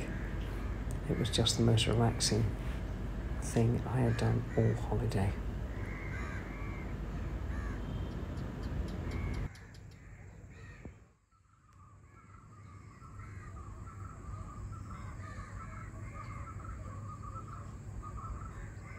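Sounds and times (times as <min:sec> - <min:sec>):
crows cawing: 0:00.0 - 0:08.2, 0:08.8 - 0:11.1, 0:11.8 - 0:18.9
low steady rumble: 0:00.0 - 0:10.7
chatter of birds: 0:00.0 - 0:18.9.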